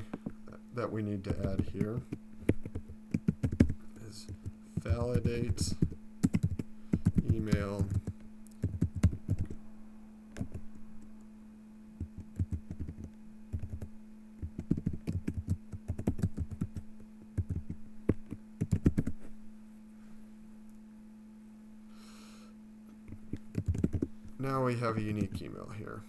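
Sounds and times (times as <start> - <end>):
low electrical hum: 0.0 - 26.0
typing on keyboard: 1.3 - 9.6, 10.4 - 10.6, 12.0 - 19.1, 23.1 - 24.1.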